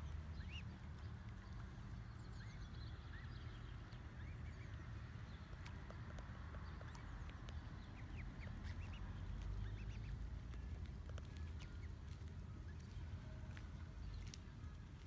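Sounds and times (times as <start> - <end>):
cygnets peeping: 0.0 - 10.3.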